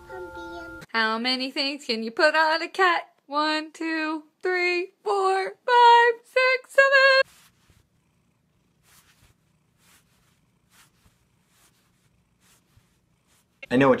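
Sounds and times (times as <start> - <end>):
cat purring: 7.2 - 13.7.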